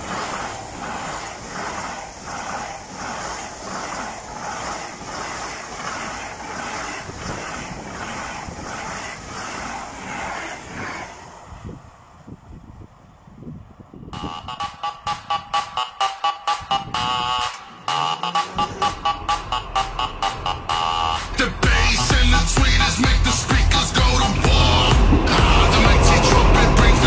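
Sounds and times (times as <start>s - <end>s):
high-speed train wheels beating: 0.0s - 27.0s
rushing hiss of passing train: 0.0s - 27.0s.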